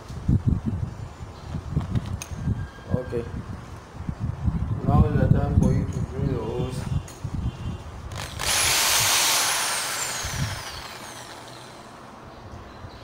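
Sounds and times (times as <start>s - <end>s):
electric drill motor whine: 8.1s - 11.9s.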